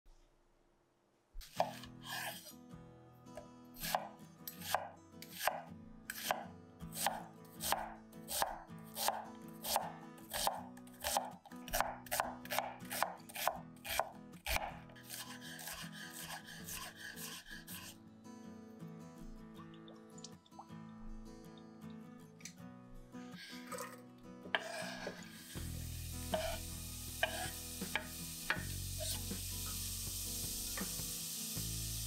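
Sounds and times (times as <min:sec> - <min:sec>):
knife cutting on a board: 0:01.4 - 0:02.5, 0:03.8 - 0:06.4, 0:07.0 - 0:18.0, 0:24.6 - 0:25.4, 0:26.3 - 0:28.1
knife scraping a board: 0:01.4 - 0:02.6, 0:12.9 - 0:18.0, 0:24.6 - 0:25.6, 0:26.3 - 0:27.6
soft background music: 0:01.5 - 0:32.0.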